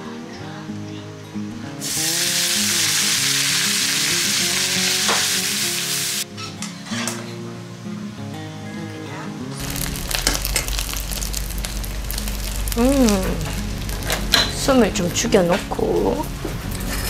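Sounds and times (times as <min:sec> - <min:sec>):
background music: 0:00.0 - 0:17.0
food sizzling in a pan: 0:01.8 - 0:08.0, 0:09.5 - 0:17.0.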